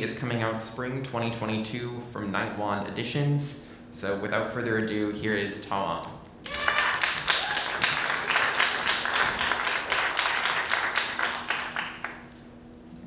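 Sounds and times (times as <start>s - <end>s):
audience applauding: 6.4s - 12.4s.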